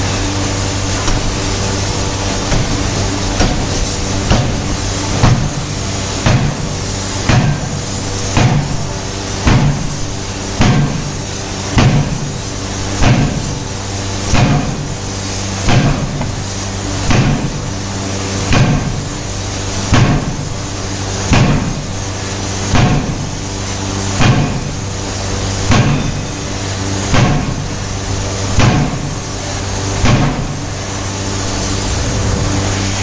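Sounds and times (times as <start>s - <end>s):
machine hum: 0.0s - 33.0s
forging hammer striking metal: 0.9s - 1.6s, 2.2s - 5.6s, 6.2s - 8.8s, 9.4s - 9.9s, 10.6s - 11.1s, 13.0s - 13.5s, 14.3s - 14.8s, 17.1s - 17.5s, 25.7s - 26.4s.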